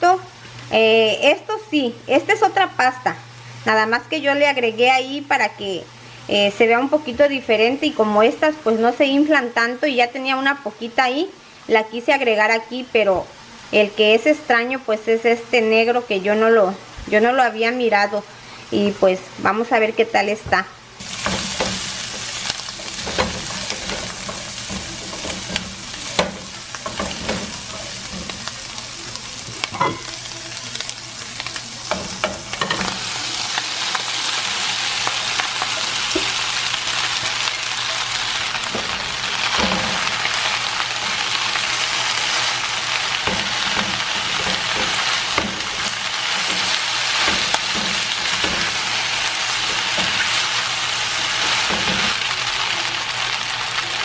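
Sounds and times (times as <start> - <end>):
spatula scraping a pan: 21.0 - 31.0, 34.4 - 52.3
shrimp sizzling in a pan: 21.0 - 54.0.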